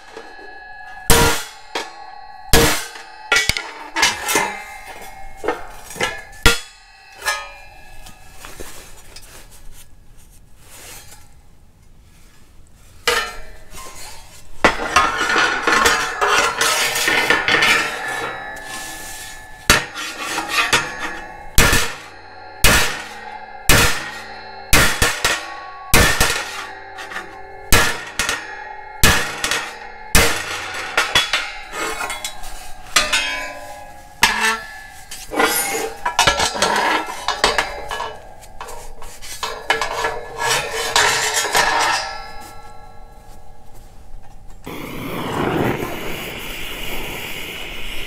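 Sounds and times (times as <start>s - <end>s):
hammer striking steel panel: 0.0s - 8.2s, 14.7s - 43.0s
metal clatter: 0.0s - 9.8s, 13.0s - 44.7s.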